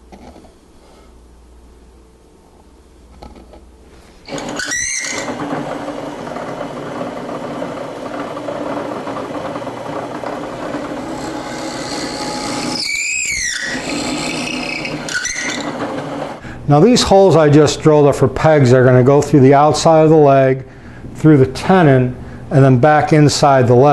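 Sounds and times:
high squeals: 4.3 - 5.4, 12.6 - 15.7
drill press boring wood: 4.3 - 16.4.

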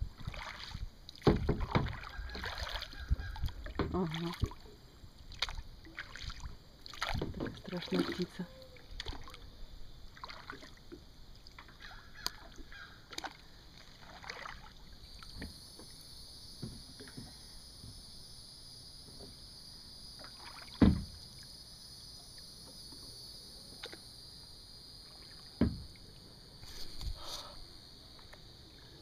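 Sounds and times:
paddle and hull knocks: 1.2 - 4.6, 6.9 - 8.3, 16.6 - 18.0, 20.4 - 21.2, 25.5 - 26.0
sharp thump: 20.8 - 21.2, 25.6 - 25.9.

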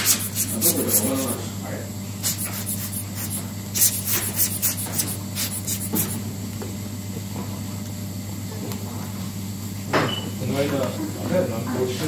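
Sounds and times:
rubber bulb blower puffing air: 0.0 - 1.4, 2.2 - 6.2.

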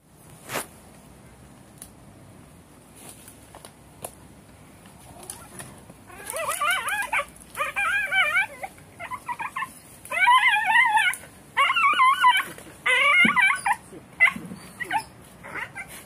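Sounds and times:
puppy whimpering cries: 5.2 - 16.0.

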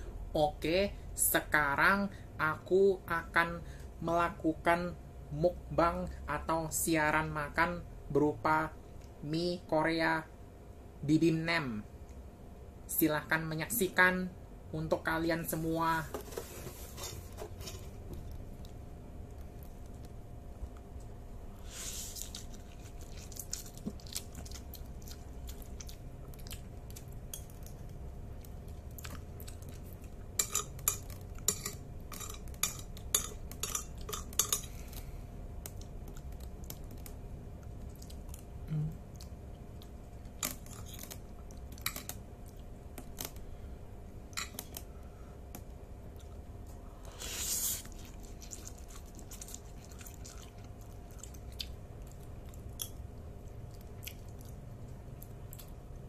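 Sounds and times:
soft chewing: 16.9 - 43.6, 44.4 - 56.0.

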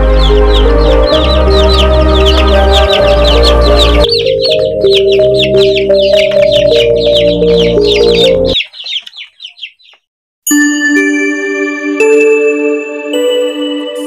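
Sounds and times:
background music: 0.0 - 8.6, 10.5 - 14.0
chicks peeping: 0.0 - 10.1
chiming jingle: 10.5 - 14.0.

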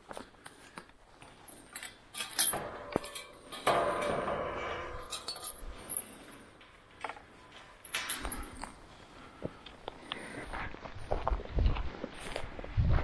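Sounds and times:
clothing and gear rustling: 0.0 - 3.6
metal fence clinking and rattling: 1.5 - 8.8.

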